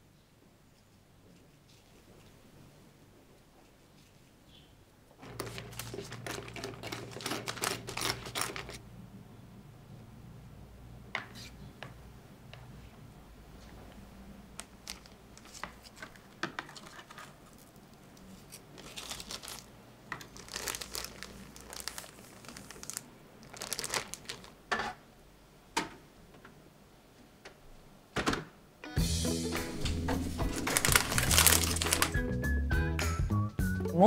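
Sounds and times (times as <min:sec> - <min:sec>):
plastic bag crinkling: 0:05.2 - 0:08.8, 0:14.6 - 0:24.7, 0:30.1 - 0:32.3.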